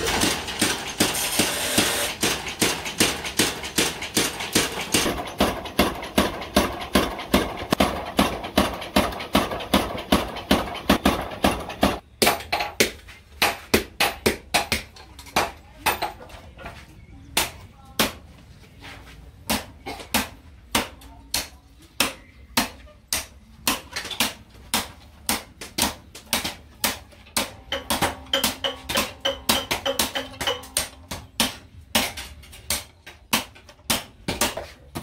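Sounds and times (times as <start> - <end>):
hammer striking steel on anvil: 0.0 - 16.2, 26.9 - 34.6.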